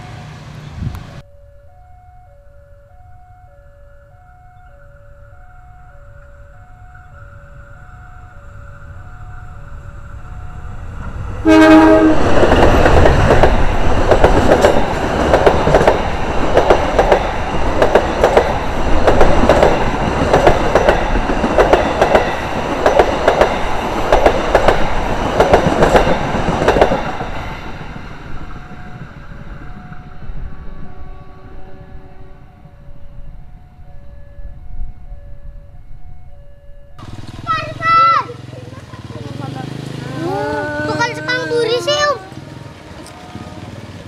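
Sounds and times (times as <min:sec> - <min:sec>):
train rumble: 0:04.0 - 0:44.0
train wheels clacking: 0:10.6 - 0:30.5
locomotive horn: 0:11.3 - 0:12.6, 0:40.3 - 0:44.0.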